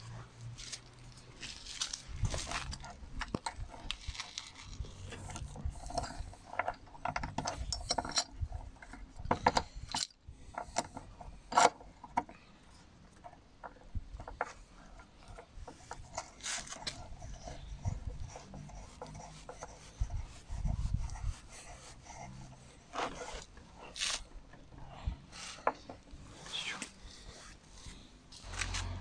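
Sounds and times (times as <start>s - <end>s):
chain and clamps rattling on steel: 0.6s - 12.3s.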